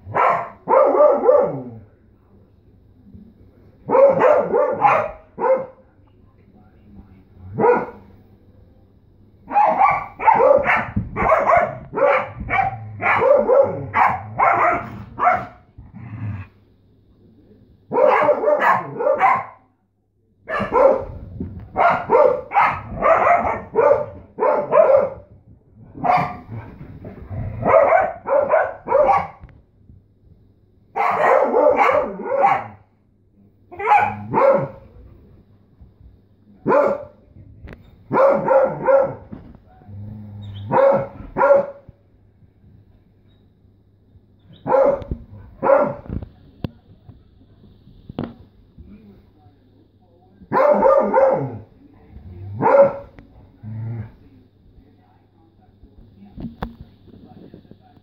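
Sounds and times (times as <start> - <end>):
dogs barking: 0.0 - 1.8, 3.9 - 5.8, 7.5 - 8.1, 9.5 - 15.7, 17.9 - 19.6, 20.5 - 21.2, 21.8 - 25.3, 26.0 - 26.5, 27.6 - 29.4, 31.0 - 32.8, 33.7 - 34.8, 36.6 - 37.2, 38.1 - 39.3, 40.6 - 41.9, 44.6 - 46.1, 50.5 - 51.6, 52.5 - 53.2.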